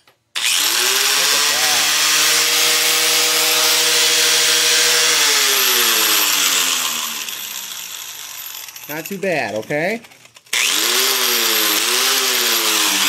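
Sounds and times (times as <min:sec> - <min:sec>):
angle grinder running and winding down: 0:00.4 - 0:13.0.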